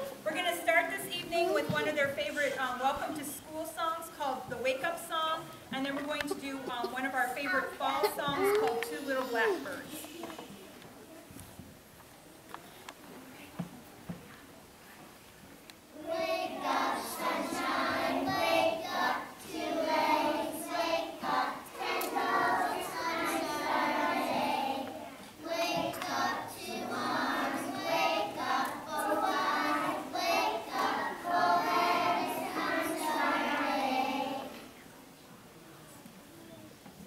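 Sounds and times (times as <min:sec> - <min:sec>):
children singing together: 0:16.0 - 0:34.7.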